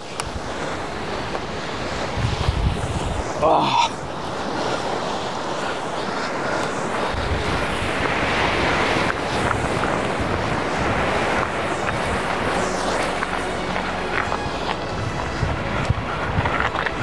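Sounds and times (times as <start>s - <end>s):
surf washing against rocks: 0.0s - 17.0s
wind buffeting microphone: 0.0s - 17.0s.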